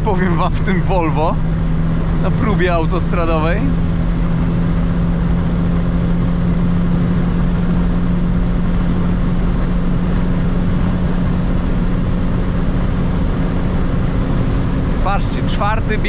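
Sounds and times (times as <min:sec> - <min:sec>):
car engine drone at high revs: 0:00.0 - 0:16.0
wind and tyre noise: 0:00.0 - 0:16.0.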